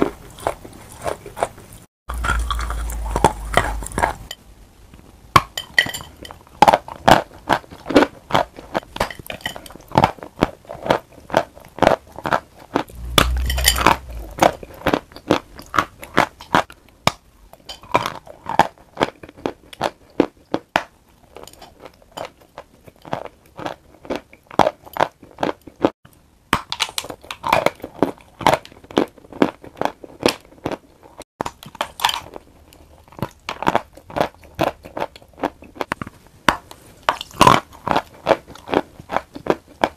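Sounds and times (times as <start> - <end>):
chalk crunching while chewed: 0.0 - 4.4, 27.0 - 39.9.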